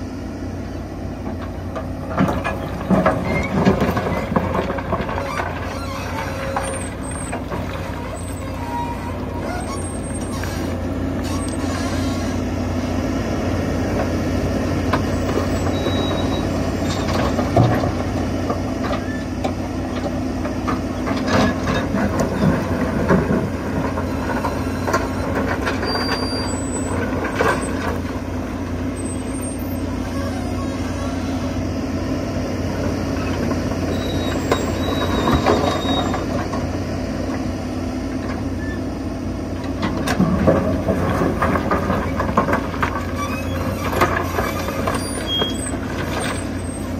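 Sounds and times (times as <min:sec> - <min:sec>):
excavator diesel engine running: 0:00.0 - 0:46.9
rock scraping steel bucket: 0:02.2 - 0:12.3.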